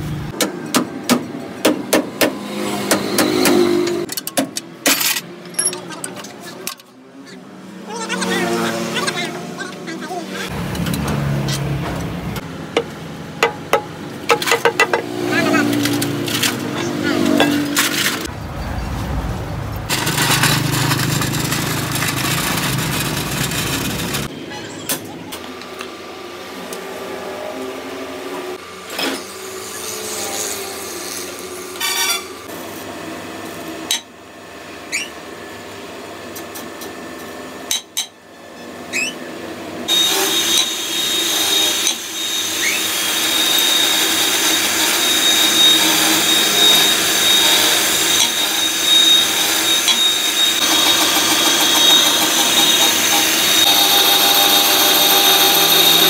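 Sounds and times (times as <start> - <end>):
tool knocks and clicks: 12.7 - 15.1
power tool whining: 19.9 - 24.3, 39.9 - 56.0.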